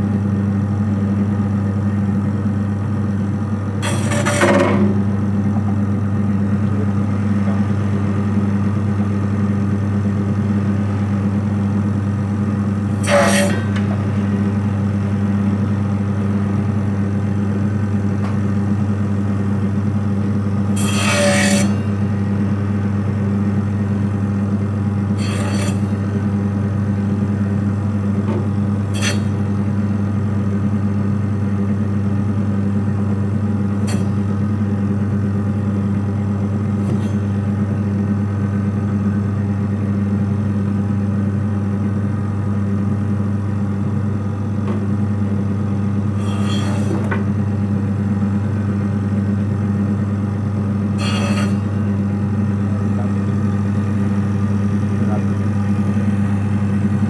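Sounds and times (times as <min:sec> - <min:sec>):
cutting machine humming: 0:02.3 - 0:40.5, 0:41.4 - 0:57.0
blade rasping scrapes: 0:03.8 - 0:04.6, 0:12.9 - 0:13.8, 0:20.7 - 0:21.9, 0:25.2 - 0:26.0, 0:28.8 - 0:29.4, 0:46.1 - 0:47.1, 0:51.0 - 0:51.8.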